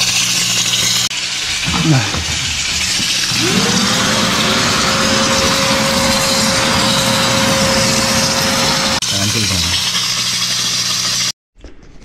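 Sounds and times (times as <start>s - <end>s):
vacuum motor whine: 3.2s - 9.0s.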